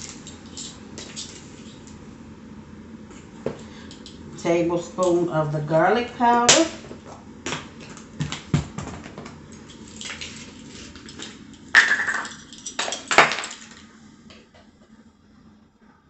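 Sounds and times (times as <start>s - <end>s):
metal spoons clattering scrapes: 0.0s - 1.8s.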